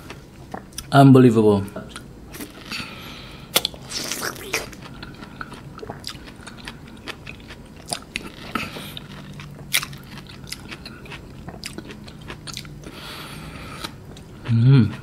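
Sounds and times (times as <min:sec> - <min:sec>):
low steady hum: 0:00.0 - 0:15.0
wet chewing and mouth clicks: 0:03.5 - 0:15.0.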